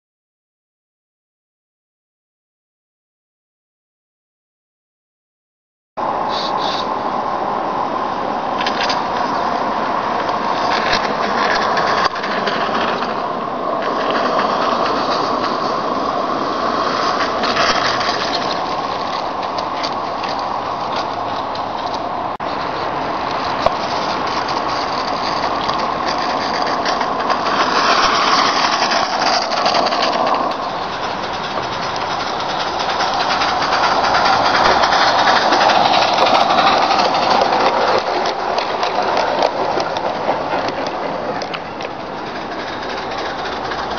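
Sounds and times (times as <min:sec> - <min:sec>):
wheels running over rails: 0:06.0 - 0:43.9
steam locomotive chuffing: 0:08.3 - 0:43.9.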